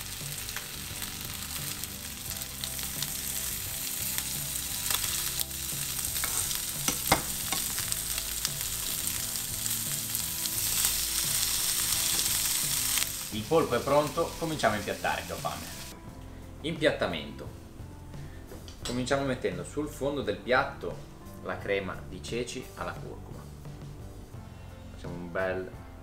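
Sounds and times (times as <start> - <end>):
octopus sizzling in hot oil: 0.0 - 16.0.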